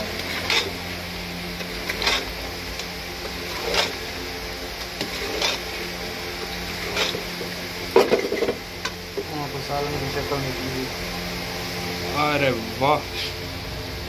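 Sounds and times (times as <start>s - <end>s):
metal spoon scraping a pot: 0.0s - 0.8s, 1.6s - 2.4s, 3.2s - 4.2s, 5.0s - 5.8s, 6.7s - 7.3s
low hum: 0.0s - 14.0s.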